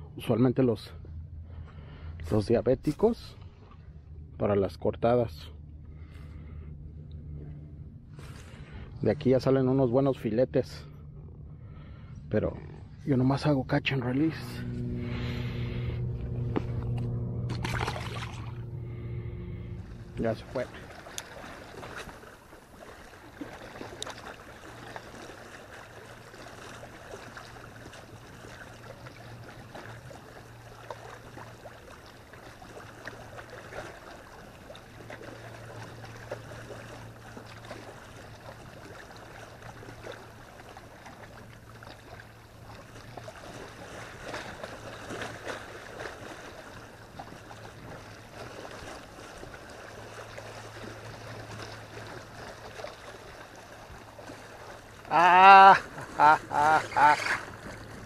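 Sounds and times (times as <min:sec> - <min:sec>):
steady low hum: 0:00.0 - 0:58.0
small waves lapping on shore: 0:14.1 - 0:58.0.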